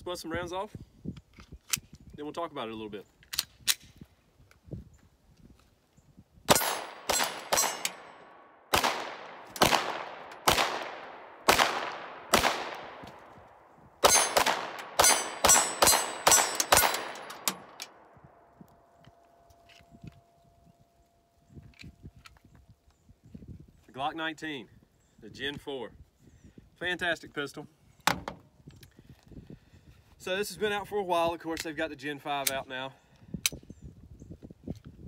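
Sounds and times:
pistol shots with echo: 0:06.5 - 0:13.2, 0:14.0 - 0:17.8.

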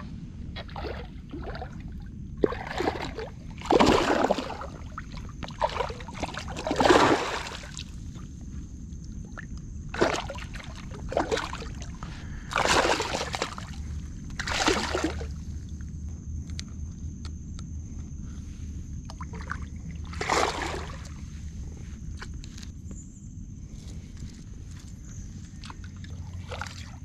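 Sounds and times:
fish splashing in water: 0:00.6 - 0:08.0, 0:09.9 - 0:15.4, 0:19.1 - 0:21.2.

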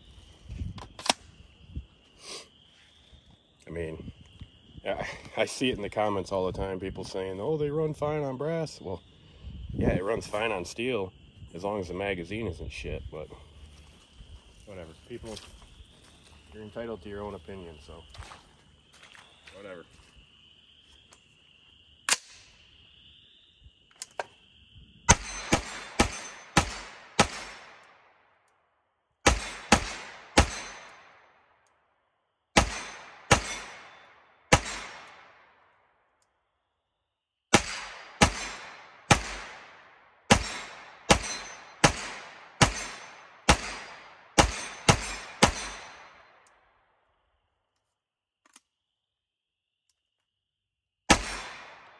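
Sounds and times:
sharp click: 0:00.8 - 0:01.3
gunshots with echo: 0:25.1 - 0:27.8, 0:29.2 - 0:31.1, 0:32.6 - 0:35.4, 0:37.5 - 0:46.3, 0:51.1 - 0:51.9.

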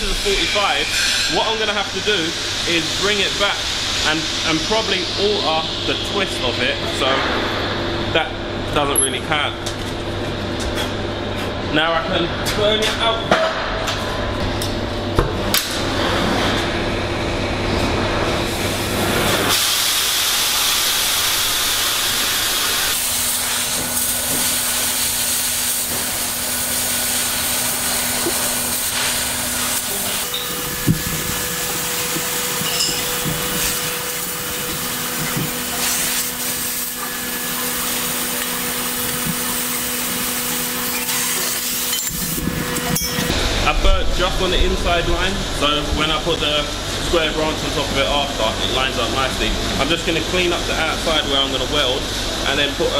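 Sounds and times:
cutting torch hissing: 0:00.0 - 0:06.8, 0:18.4 - 0:47.1.

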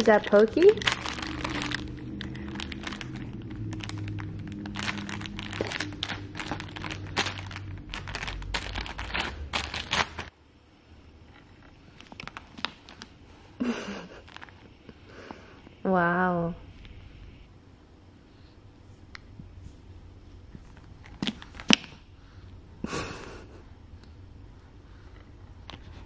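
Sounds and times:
plastic pack crinkling: 0:00.0 - 0:10.3, 0:11.9 - 0:13.2, 0:14.1 - 0:14.7.

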